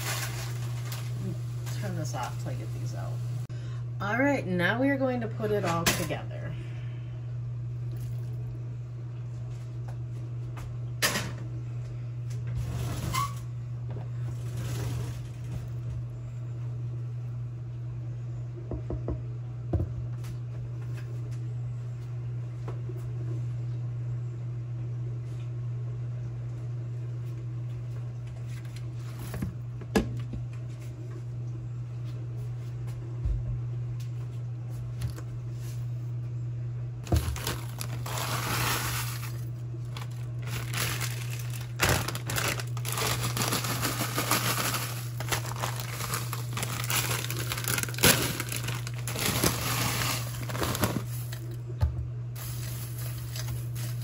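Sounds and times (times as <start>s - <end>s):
frozen vegetables clattering: 0.0s - 2.3s, 37.0s - 51.6s, 52.4s - 54.0s
plastic bag crinkling: 0.0s - 2.8s, 37.0s - 51.6s, 52.4s - 54.0s
steady low hum: 0.0s - 54.0s.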